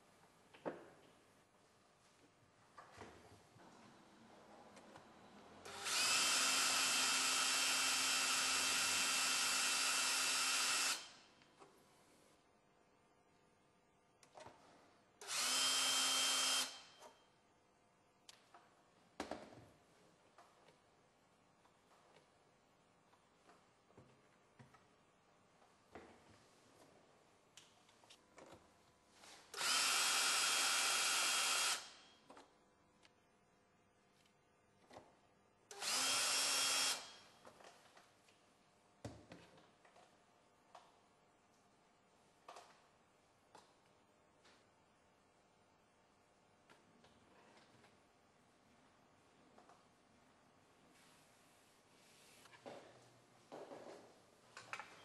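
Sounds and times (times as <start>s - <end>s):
cordless drill running: 5.7s - 11.2s, 15.2s - 17.0s, 29.5s - 32.0s, 35.7s - 37.2s.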